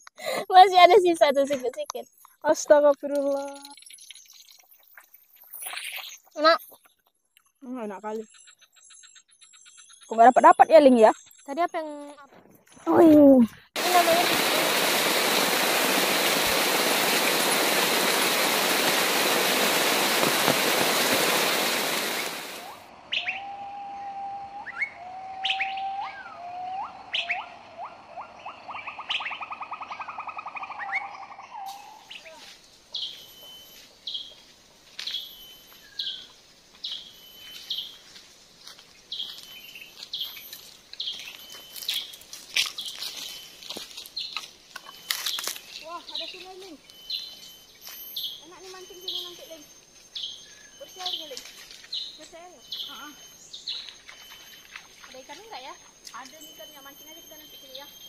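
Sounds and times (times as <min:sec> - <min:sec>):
birds trilling and chirping: 0:01.0 - 0:12.9, 0:13.8 - 0:58.0
faint high steady tone: 0:44.7 - 0:58.0.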